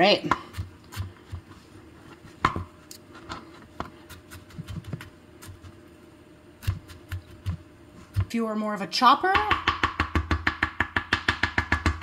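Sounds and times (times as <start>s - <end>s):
knife chopping on cutting board: 9.4s - 12.0s.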